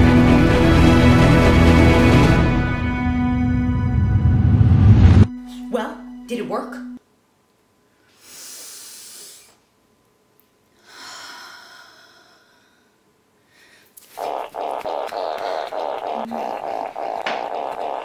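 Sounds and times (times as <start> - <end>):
woman breathing loudly: 8.0 - 9.6, 10.8 - 14.0
rasping crackling sound: 14.0 - 18.0.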